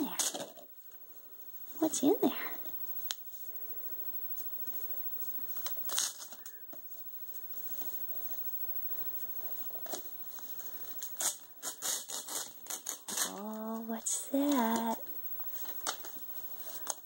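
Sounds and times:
wrapping paper crinkling and tearing: 5.6s - 6.5s, 9.8s - 13.6s.

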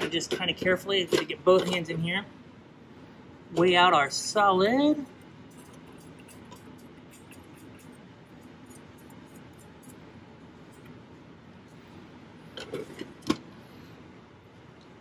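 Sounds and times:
room noise: 0.0s - 15.0s.

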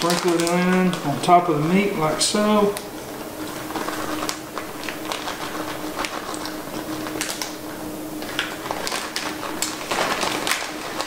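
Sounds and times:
small clicks and crackles: 0.0s - 1.1s, 3.5s - 11.0s
plastic bag crinkling: 0.0s - 11.0s
steady hum: 0.0s - 11.0s.

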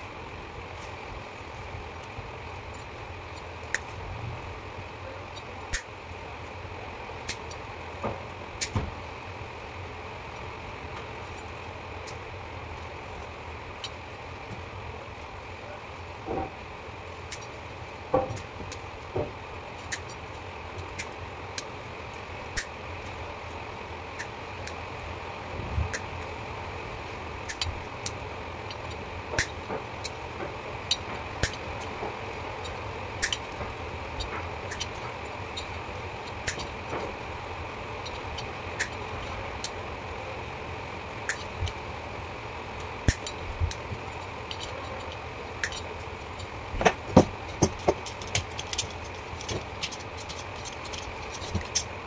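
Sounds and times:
steady hum: 0.0s - 52.0s
pliers and wire cutters snipping: 5.3s - 5.9s, 27.4s - 37.2s, 38.0s - 39.8s, 43.0s - 52.0s.

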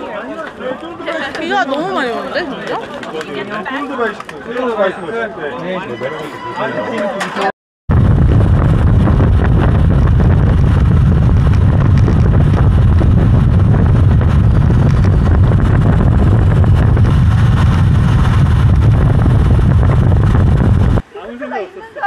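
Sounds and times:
wind buffeting microphone: 7.9s - 21.0s.

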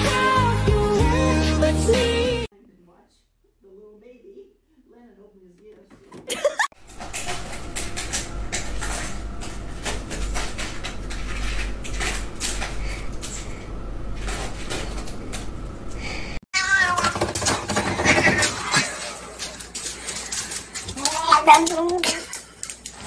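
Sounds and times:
cat meowing and yowling: 16.6s - 17.2s.

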